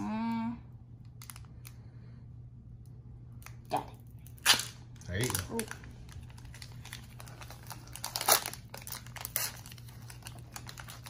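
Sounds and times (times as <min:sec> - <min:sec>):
foil wrapper crinkling: 0:04.3 - 0:11.0.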